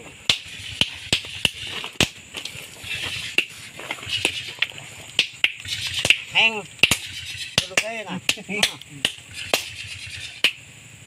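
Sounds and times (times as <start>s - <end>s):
hammers striking rock: 0.3s - 2.3s, 5.2s - 9.8s.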